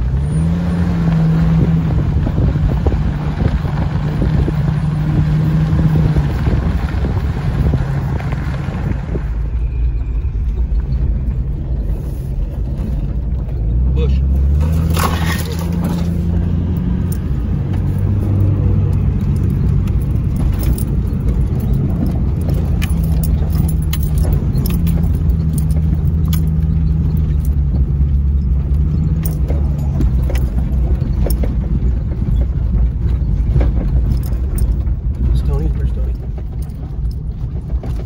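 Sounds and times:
engine and road drone: 0.0 - 38.0
clicks and jangling rattles: 10.5 - 38.0.

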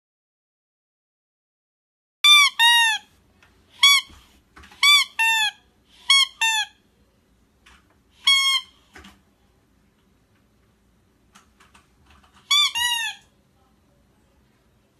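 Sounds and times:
plush toy squeaker squeaks: 2.2 - 3.1, 3.8 - 4.2, 4.8 - 6.8, 8.2 - 8.8, 12.4 - 13.3.

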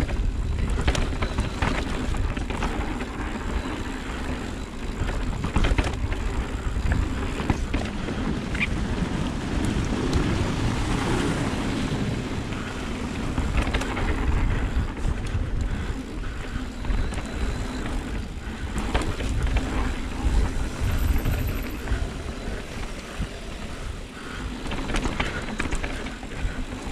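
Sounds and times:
bike clicks and knocks: 0.0 - 11.5, 12.2 - 26.9
bike tyres rumbling over dirt: 0.0 - 26.9
wind on microphone: 0.0 - 26.9.

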